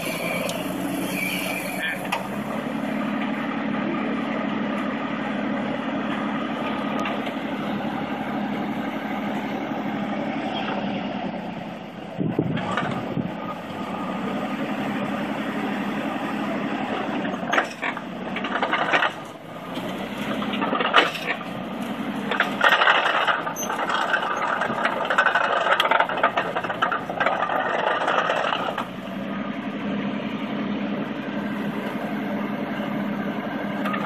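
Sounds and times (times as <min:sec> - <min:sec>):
cable excavator running: 0:00.0 - 0:34.0
excavator knocks and scrapes: 0:17.2 - 0:29.0.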